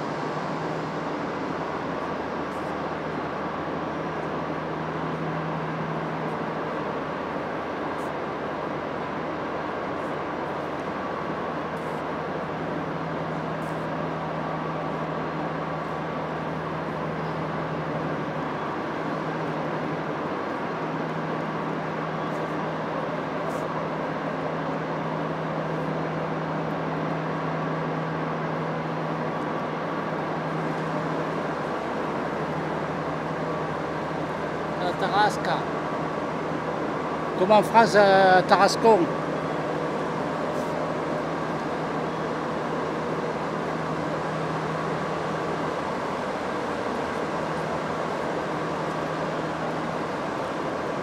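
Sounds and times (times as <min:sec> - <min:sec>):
mechanical hum: 0:00.0 - 0:51.0
station hall background noise: 0:00.0 - 0:51.0.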